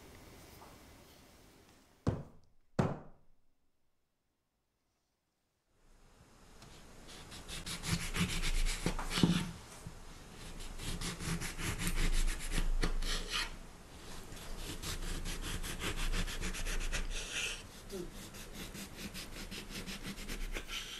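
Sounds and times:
knife sawing through orange: 0:07.1 - 0:09.5, 0:10.4 - 0:13.6, 0:14.4 - 0:20.9.

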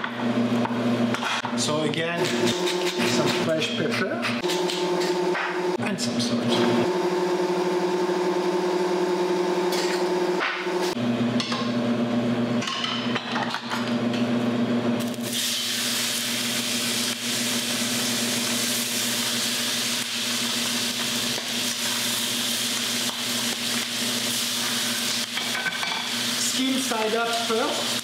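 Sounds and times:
chicken sizzling in frying pan: 0:15.0 - 0:28.0.

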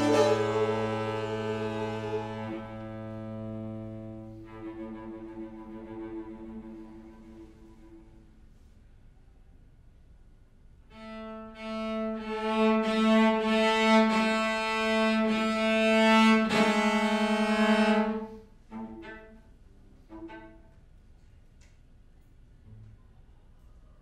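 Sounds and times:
cello low held note: 0:00.0 - 0:08.2
soft higher string notes: 0:00.0 - 0:08.7.

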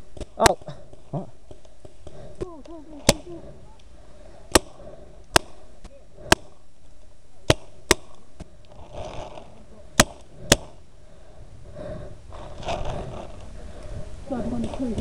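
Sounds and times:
paintball marker firing pops: 0:00.1 - 0:03.4, 0:04.5 - 0:06.6, 0:07.4 - 0:08.6, 0:09.2 - 0:10.8.

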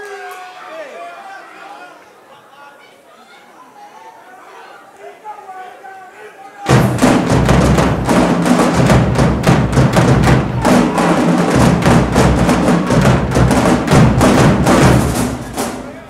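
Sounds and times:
marching bass drums: 0:06.7 - 0:16.0
snare drums: 0:06.7 - 0:16.0.

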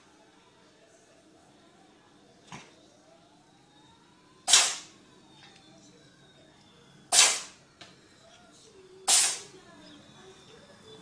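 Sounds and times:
cat sneezing: 0:04.5 - 0:04.8, 0:07.1 - 0:07.5, 0:09.1 - 0:09.4.

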